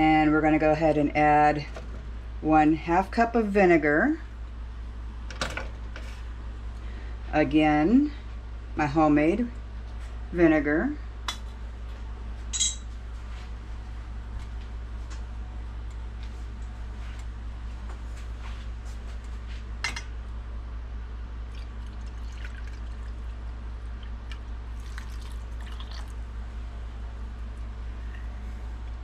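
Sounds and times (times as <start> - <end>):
steady low hum: 0.0 - 29.0
glass clinking: 12.5 - 12.9
vinegar pouring: 21.4 - 26.3.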